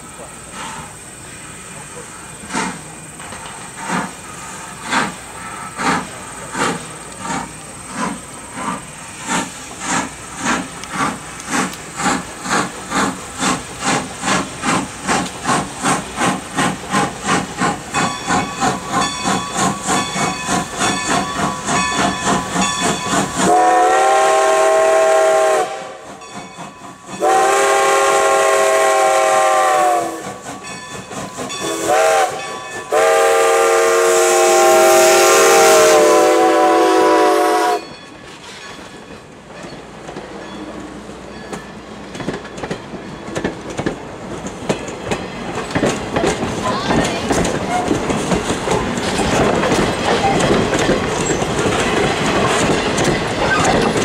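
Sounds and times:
steam locomotive chuffing: 0.0 - 54.0
steam whistle blasts: 23.4 - 26.1, 27.2 - 30.4, 31.6 - 37.9.

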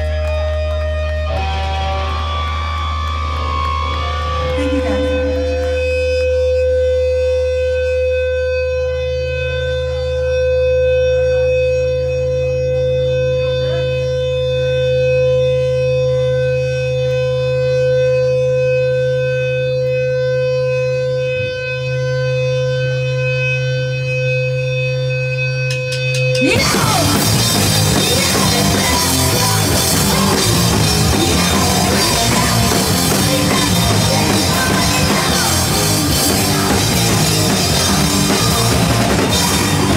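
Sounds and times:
rock band playing loud: 0.0 - 16.4, 24.9 - 39.9
guitar drone with feedback: 0.0 - 39.9.

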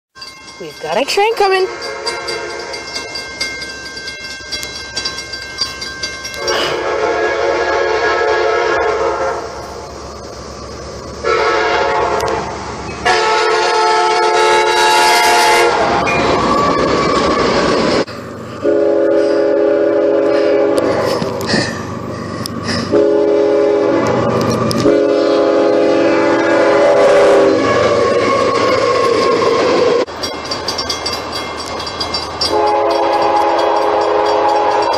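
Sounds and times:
freight cars rumbling and clacking: 0.2 - 6.9, 20.0 - 25.4, 27.6 - 34.9
train air horn blasts: 1.5 - 2.8, 6.3 - 9.8, 11.2 - 17.6, 18.6 - 21.4, 22.8 - 30.0, 32.5 - 34.9.

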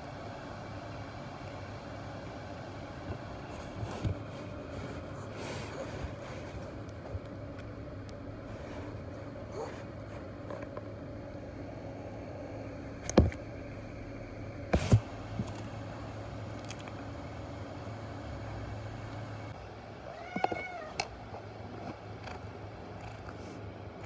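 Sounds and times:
kitten meowing: 20.1 - 21.0.

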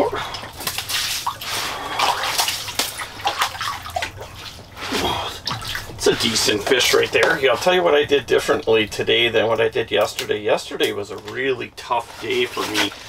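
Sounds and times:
fish splashing in water: 0.0 - 7.6
fish slapping on wet ice: 0.4 - 7.6.

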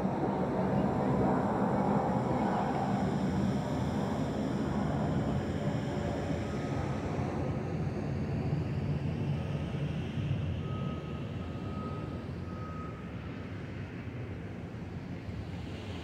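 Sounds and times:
jet airliner engines rumbling: 0.0 - 16.0.

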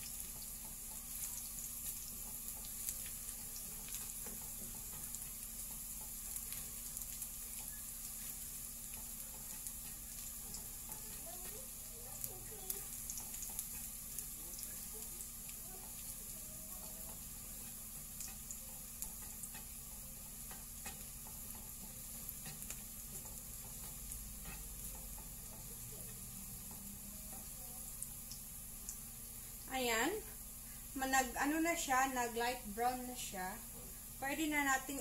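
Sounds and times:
garlic sizzling in hot oil: 0.0 - 35.0
spatula clicking and scraping: 0.2 - 27.6.

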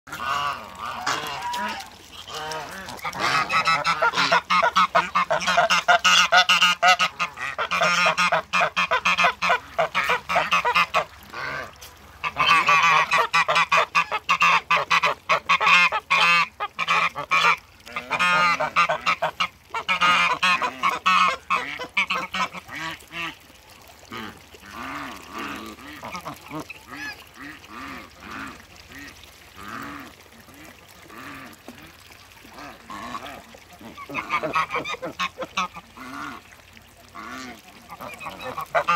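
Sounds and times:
geese honking: 0.1 - 22.8, 37.2 - 38.9.

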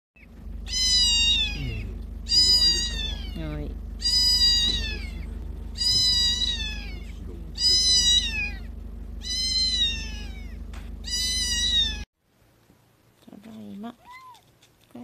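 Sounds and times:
car hum: 0.2 - 12.1
kitten meowing: 0.7 - 12.0, 14.0 - 14.4.

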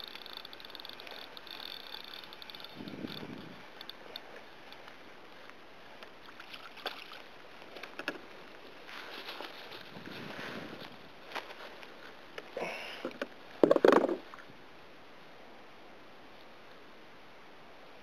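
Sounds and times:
gear knocking: 0.0 - 4.2.

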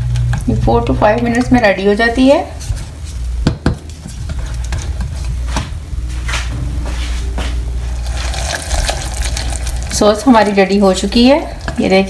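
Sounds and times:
steady low hum: 0.0 - 12.0
sauce sizzling: 7.6 - 12.0.

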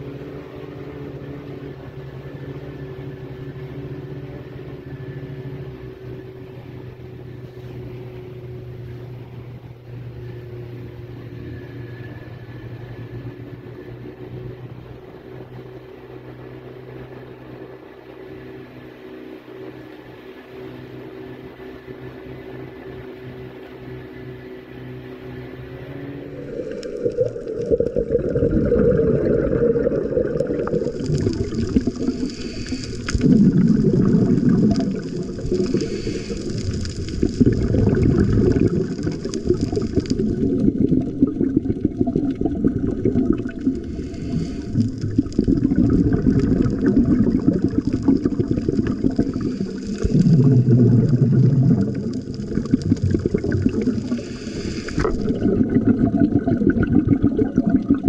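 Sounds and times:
exhaled bubbles bursting: 26.0 - 58.0
diver breathing through regulator: 26.2 - 37.8, 43.6 - 45.4, 47.5 - 51.5, 53.3 - 55.5.

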